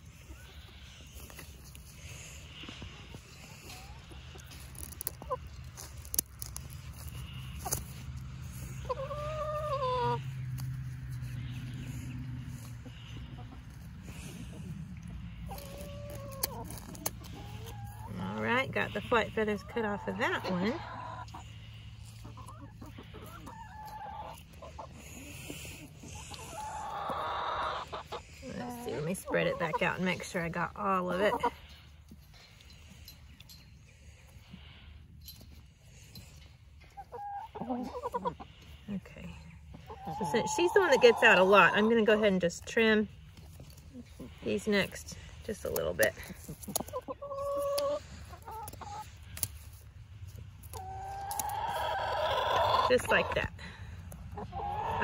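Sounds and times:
hens clucking: 0.0 - 55.0
scissors snipping feathers: 48.7 - 49.6.

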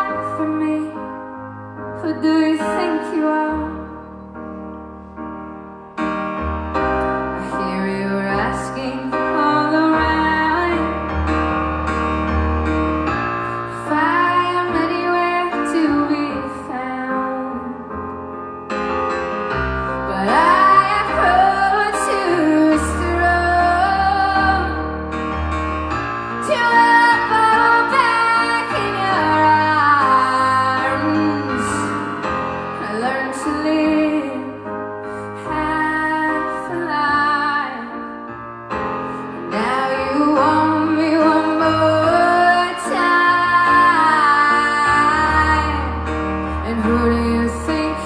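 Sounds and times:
woman singing pop ballad: 0.0 - 1.2, 2.0 - 3.9, 7.4 - 11.0, 13.7 - 17.9, 20.1 - 24.9, 26.4 - 32.1, 32.8 - 34.7, 35.4 - 38.1, 39.4 - 48.0
piano accompaniment: 0.0 - 48.0.

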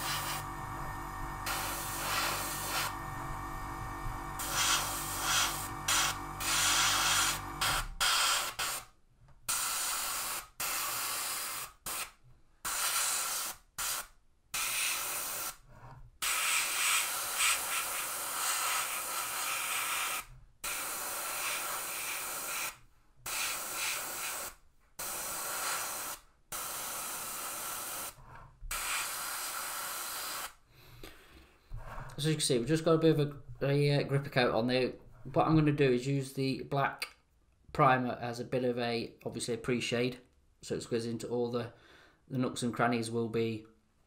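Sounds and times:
airbrush spraying hiss: 0.0 - 0.5, 1.4 - 3.0, 4.4 - 8.8, 16.2 - 28.1, 28.7 - 30.6.

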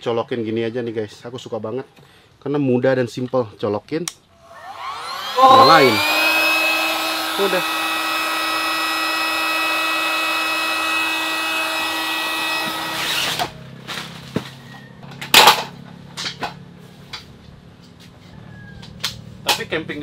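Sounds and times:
electric air pump whining: 4.4 - 13.6.

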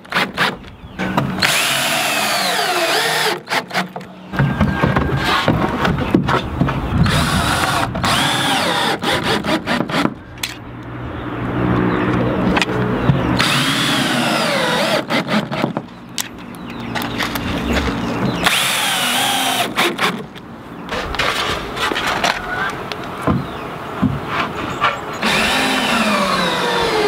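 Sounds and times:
drill motor whine: 25.2 - 27.0.

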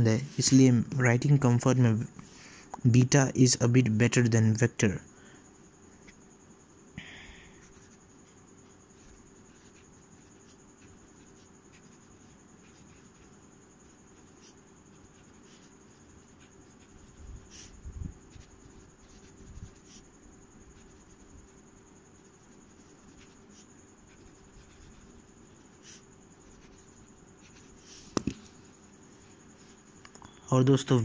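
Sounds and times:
fountain pen scratching on paper: 9.0 - 20.0, 20.7 - 21.3, 22.2 - 28.4.

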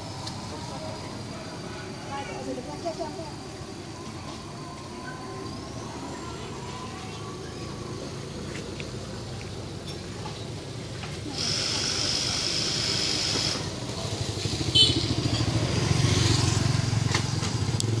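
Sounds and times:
motorbike engines passing: 0.0 - 18.0
loud motorbike engine: 7.5 - 18.0.

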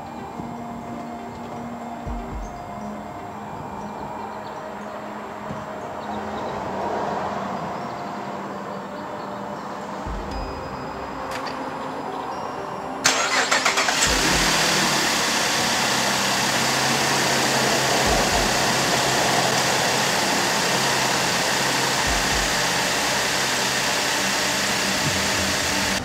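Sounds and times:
car engine idling: 13.0 - 26.0
engine starter cranking: 13.0 - 26.0.

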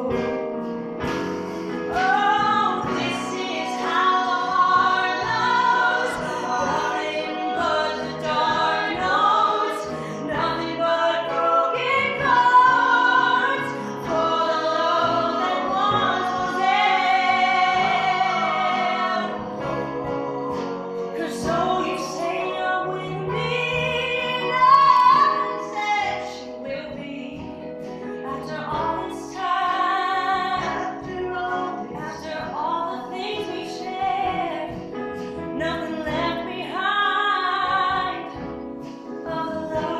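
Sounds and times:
upright bass: 0.0 - 26.2
acoustic guitar: 0.0 - 39.9
piano: 0.0 - 39.9
woman singing: 1.9 - 20.0, 20.8 - 38.5, 39.1 - 39.9.

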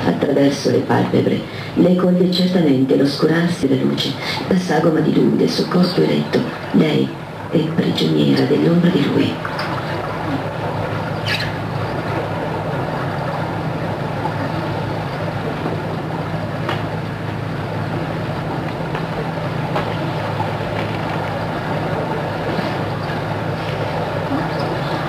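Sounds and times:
low rumbling drone: 5.9 - 25.0.

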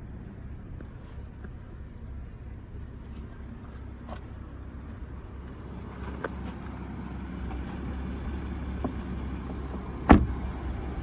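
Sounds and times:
low steady rumble: 0.0 - 11.0
car door shutting with thud: 10.0 - 10.5.

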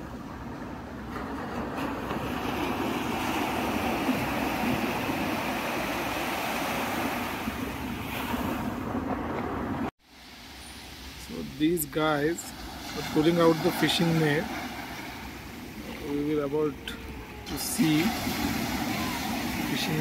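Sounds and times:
wind buffeting microphone: 0.0 - 9.9
sea surf washing onto beach: 0.0 - 20.0.

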